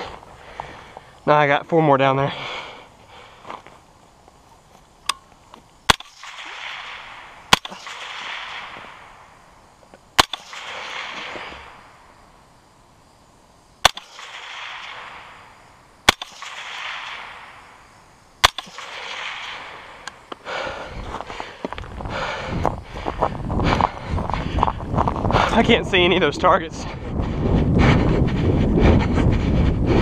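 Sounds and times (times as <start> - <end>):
rifle shots with echo: 5.9 - 9.3, 10.2 - 11.4, 13.8 - 17.7, 18.4 - 20.0.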